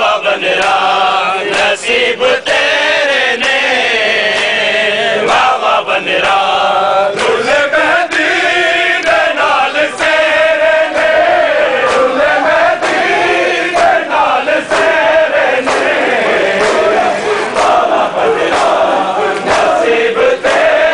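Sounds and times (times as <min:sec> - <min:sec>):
crowd of men chanting: 0:00.0 - 0:20.9
chest-beating slaps: 0:10.9 - 0:20.7.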